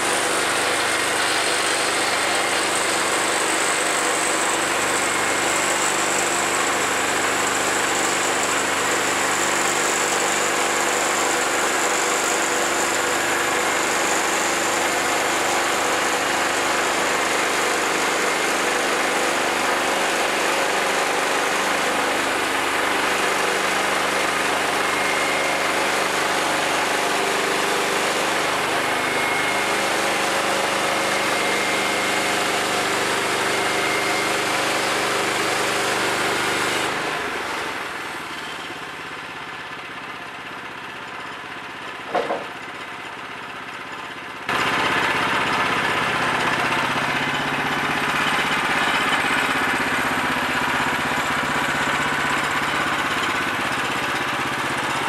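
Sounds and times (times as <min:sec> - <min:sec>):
band saw cutting log: 0:00.0 - 0:39.4, 0:42.0 - 0:43.0, 0:44.5 - 0:55.0
small gas engine running: 0:00.0 - 0:55.0
brief knock: 0:42.1 - 0:42.6.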